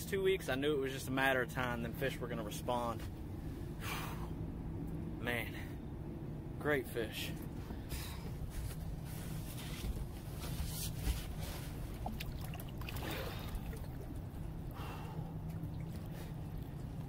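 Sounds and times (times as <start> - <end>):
steady low hum: 0.0 - 17.0
fish splashing in water: 11.9 - 17.0.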